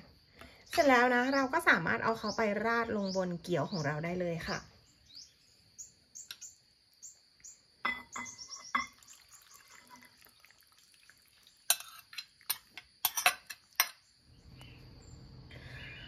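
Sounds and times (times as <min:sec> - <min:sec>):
utensil clinking against bowl: 0:07.9 - 0:10.1, 0:11.7 - 0:14.0.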